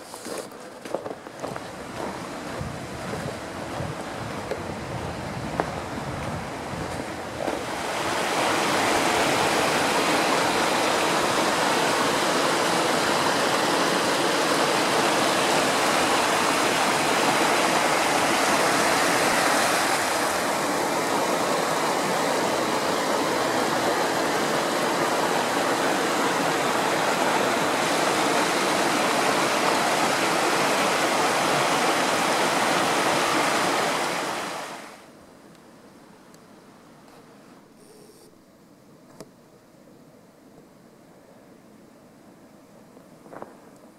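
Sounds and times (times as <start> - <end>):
rushing mountain stream: 0.0 - 35.1.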